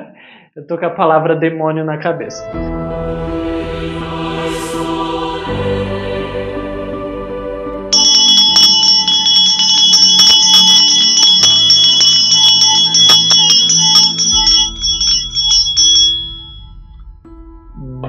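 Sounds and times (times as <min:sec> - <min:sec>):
bell chime music: 0:07.9 - 0:17.0.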